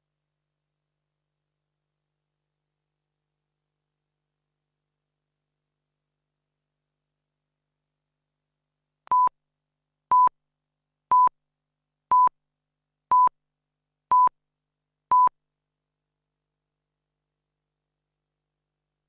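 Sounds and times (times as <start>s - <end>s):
short countdown beeps: 10.1s - 10.3s, 11.1s - 11.3s, 12.1s - 12.3s, 13.1s - 13.3s, 14.1s - 14.3s.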